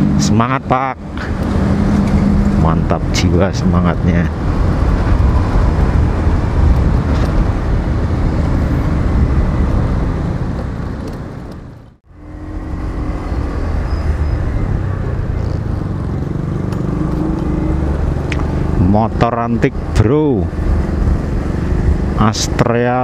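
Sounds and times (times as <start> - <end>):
road and wind noise: 0.0 - 23.0.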